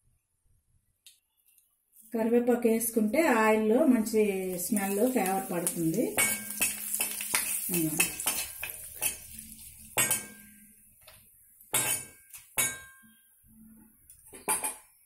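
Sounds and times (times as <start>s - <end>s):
leaves sizzling in hot oil: 2.8s - 10.4s
metal spatula scraping metal pan: 6.1s - 10.5s, 11.7s - 12.9s.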